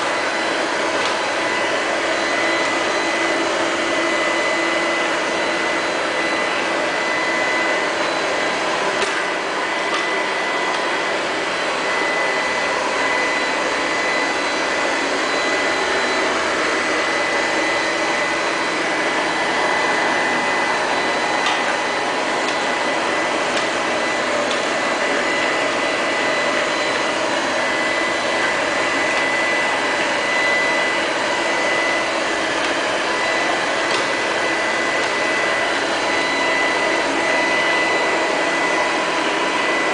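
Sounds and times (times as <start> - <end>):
robot vacuum cleaner humming: 0.0 - 39.9.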